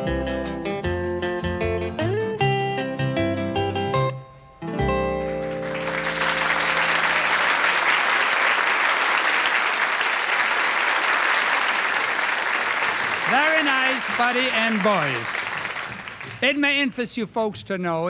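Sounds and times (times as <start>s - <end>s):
audience applause: 5.3s - 16.7s.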